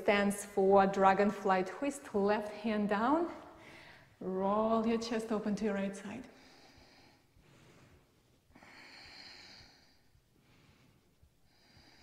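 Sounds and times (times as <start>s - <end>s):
woman breathing: 3.4s - 4.2s, 6.3s - 12.0s.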